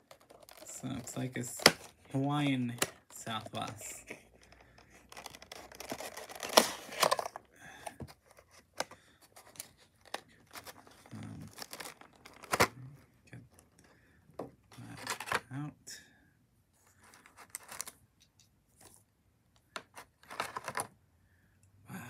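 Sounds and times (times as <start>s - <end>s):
plastic packaging crinkling and crackling: 0.0s - 7.5s, 8.3s - 12.7s.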